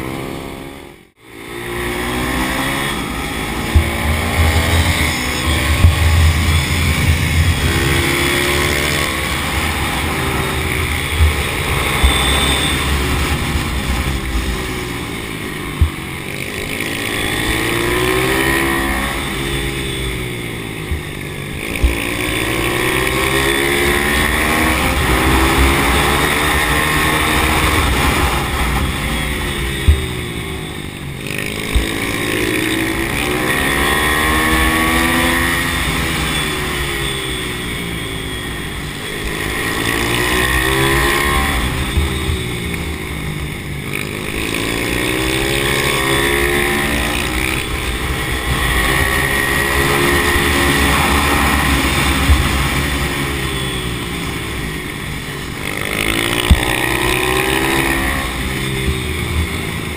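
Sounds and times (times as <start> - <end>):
motorbike engine revving: 0.0 - 59.9.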